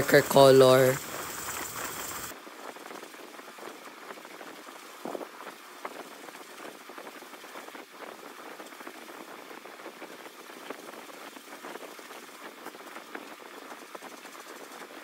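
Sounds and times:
cloth rubbing wax on spinning wood: 0.0s - 2.3s.

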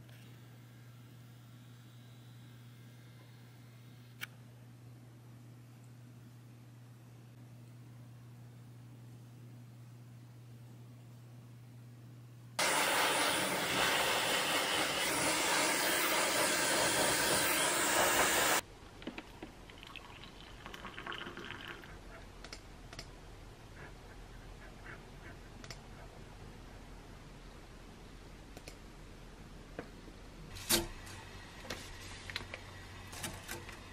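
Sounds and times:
electric kettle boiling: 12.6s - 22.0s
water pouring into a mug: 19.6s - 22.0s.

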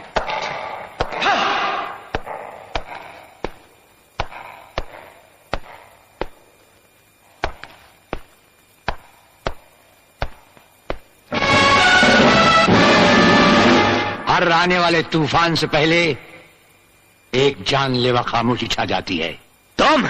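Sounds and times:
person crying out: 1.0s - 3.4s.

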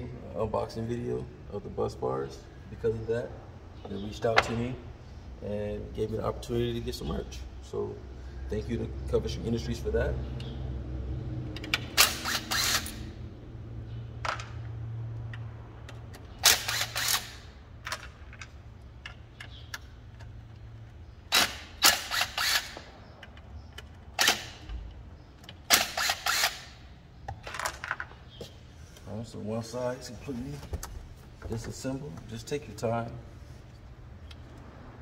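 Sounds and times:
impact driver hammering screws: 11.8s - 13.0s, 16.4s - 17.5s, 21.3s - 22.9s, 24.2s - 24.7s, 25.6s - 26.8s.

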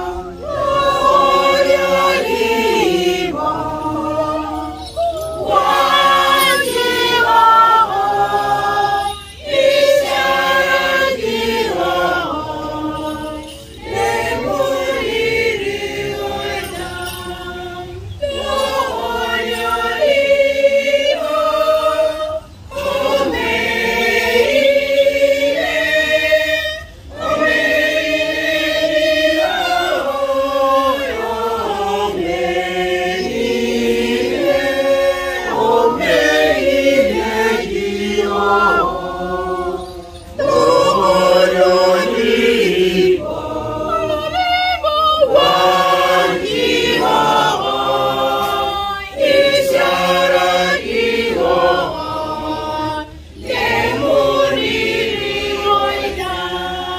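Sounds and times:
woman singing: 0.0s - 30.2s, 37.2s - 46.0s, 48.4s - 49.6s
group singing a hymn: 0.0s - 56.9s.

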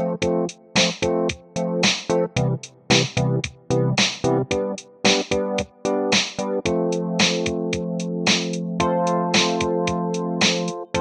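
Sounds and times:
steady drum beat: 0.2s - 8.6s, 9.4s - 11.0s.

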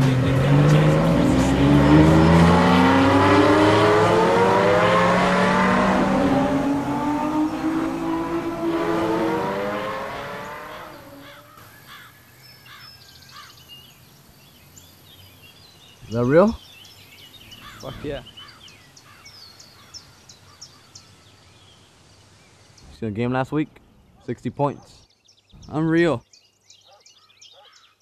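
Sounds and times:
car accelerating through gears: 0.0s - 11.3s.

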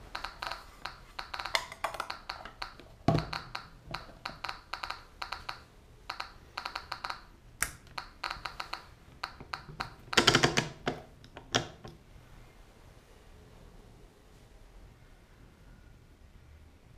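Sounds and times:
geiger counter clicking: 0.0s - 12.0s.

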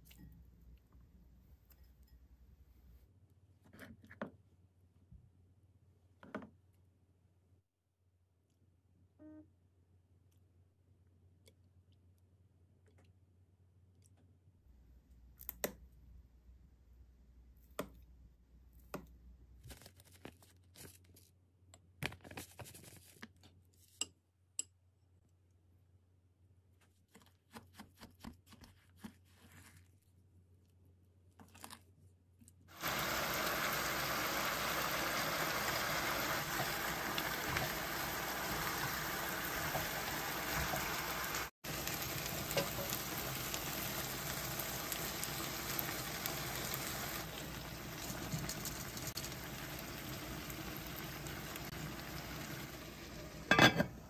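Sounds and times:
pot of food sizzling: 32.7s - 54.0s.

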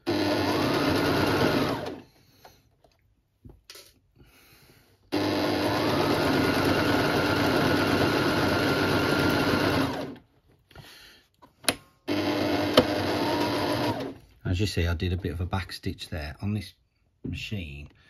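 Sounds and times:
electric sewing machine stitching: 0.0s - 2.1s, 5.1s - 10.2s, 12.1s - 14.2s.

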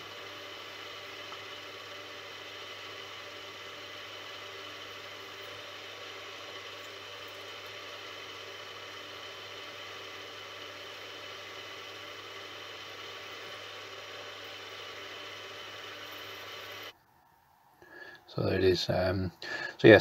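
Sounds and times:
milling machine humming: 0.0s - 16.9s.

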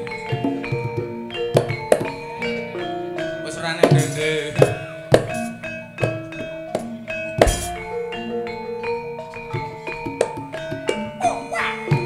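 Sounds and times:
metallophones ringing: 0.0s - 12.0s
drum strokes: 3.2s - 8.2s.

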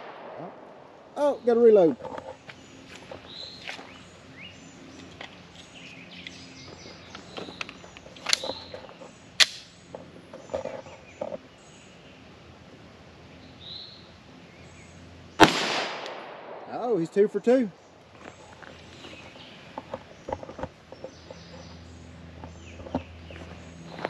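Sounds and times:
loud gunshot: 0.0s - 0.9s, 15.4s - 16.8s
birds chirping: 0.0s - 15.6s, 16.4s - 24.0s.

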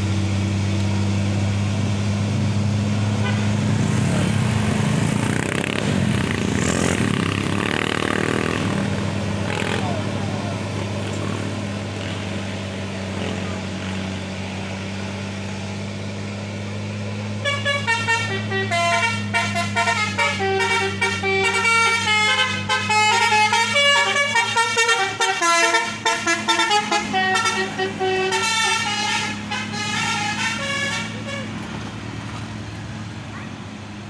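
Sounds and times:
diesel engine drone: 0.0s - 34.0s
melodic bus horn: 3.1s - 4.2s, 17.3s - 31.8s.

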